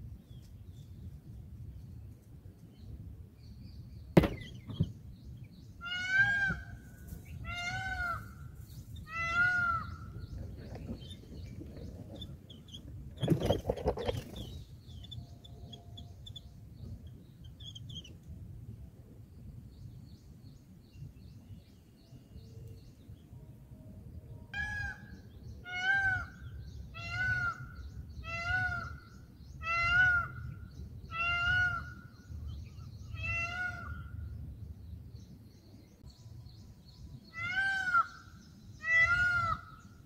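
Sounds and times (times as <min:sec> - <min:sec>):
sharp knock: 0:04.2 - 0:04.9
faint high bird chirps: 0:07.2 - 0:18.2.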